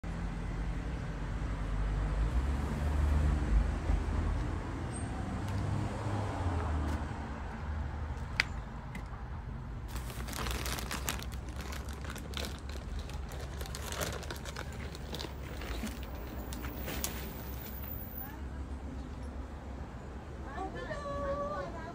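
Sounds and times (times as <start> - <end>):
plastic sack crinkling: 9.9 - 17.9.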